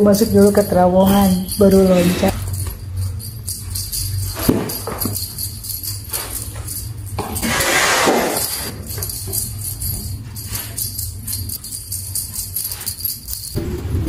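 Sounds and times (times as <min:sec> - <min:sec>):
music with jingling bells: 0:00.0 - 0:13.6.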